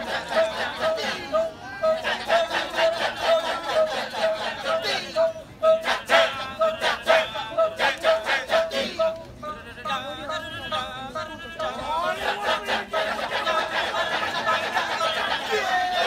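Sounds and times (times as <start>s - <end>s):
men chanting in chorus: 0.0s - 16.0s.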